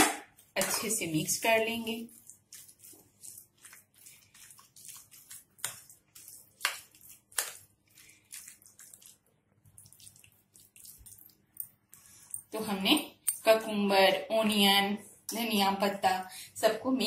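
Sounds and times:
spoon stirring in a bowl: 0.3 - 13.6.

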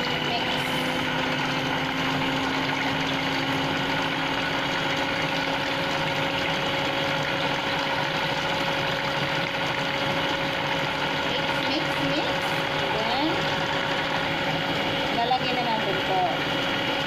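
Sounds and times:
stand mixer motor humming: 0.0 - 17.0.

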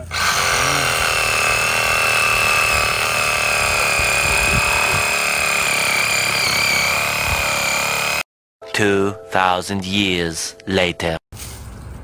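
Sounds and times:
reciprocating saw cutting wood: 0.0 - 8.3.

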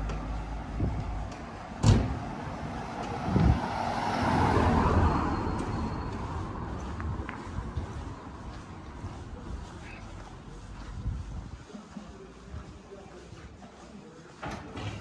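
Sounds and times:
vehicle passing: 0.0 - 11.6.

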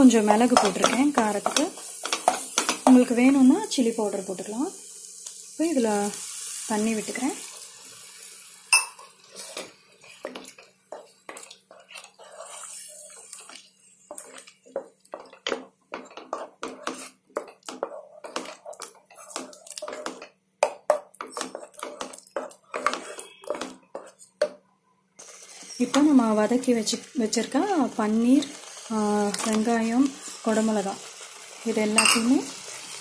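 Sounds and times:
wooden spatula scraping metal pan: 9.3 - 20.3, 21.2 - 24.3.

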